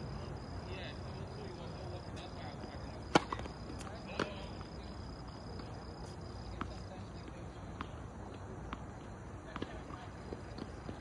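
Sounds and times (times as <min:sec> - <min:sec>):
crickets chirring: 0:00.0 - 0:11.0
racket striking ball: 0:03.1 - 0:04.3.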